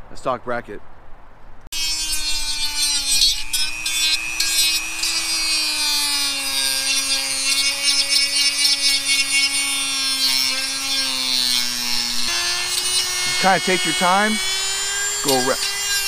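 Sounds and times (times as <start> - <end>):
rotary tool grinding plastic: 1.8 - 16.0.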